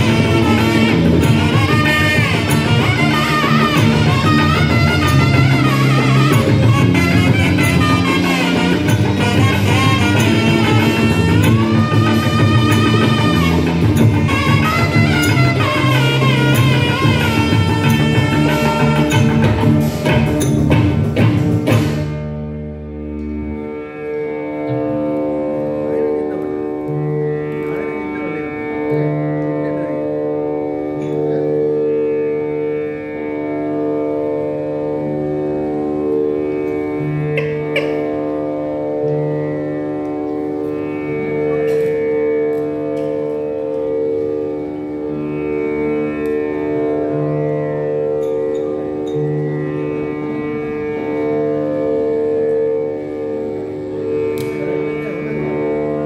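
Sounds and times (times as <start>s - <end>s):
steady drone: 0.0s - 56.0s
electronic keyboard slow melody: 21.8s - 56.0s.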